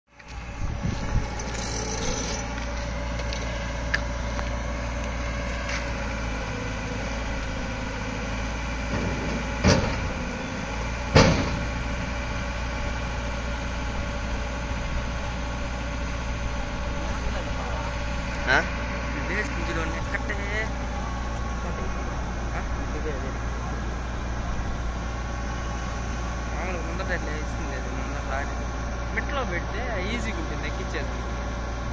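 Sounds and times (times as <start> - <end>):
excavator diesel engine running: 0.1 - 31.9
loud knocks: 11.1 - 11.8.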